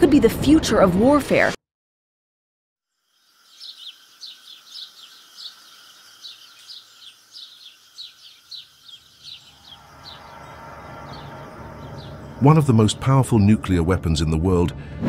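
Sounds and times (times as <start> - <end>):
bird chirping: 2.9 - 14.0
faint steady background tone: 2.9 - 14.7
low hum: 9.0 - 15.0.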